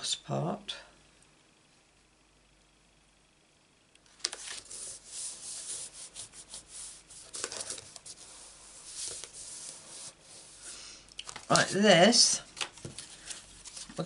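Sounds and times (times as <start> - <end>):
cardstock rubbing and rustling: 4.2 - 10.6, 12.5 - 14.0.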